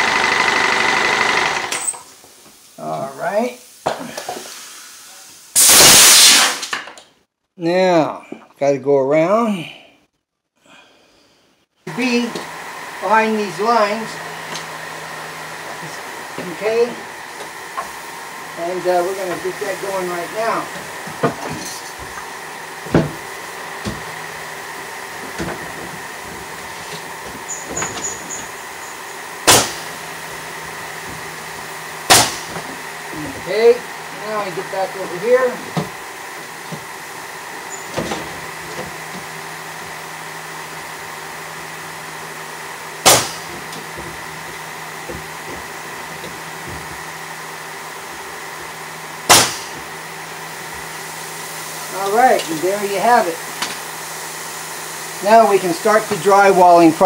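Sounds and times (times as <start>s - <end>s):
nail gun shot: 5.6s - 6.9s, 29.4s - 30.0s, 32.1s - 32.6s, 43.0s - 43.5s, 49.3s - 49.8s
steady low hum: 10.7s - 57.0s
dull knocks in wooden cabinet: 22.9s - 23.2s.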